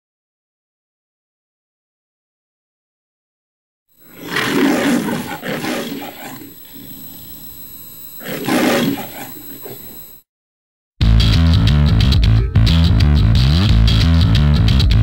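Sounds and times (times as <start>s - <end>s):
lion roaring: 4.0s - 7.2s, 8.2s - 10.0s.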